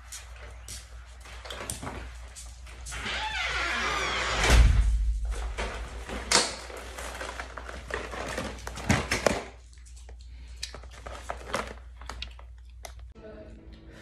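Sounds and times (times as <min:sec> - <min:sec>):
cardboard packaging rustling: 0:05.2 - 0:09.6, 0:10.8 - 0:12.5.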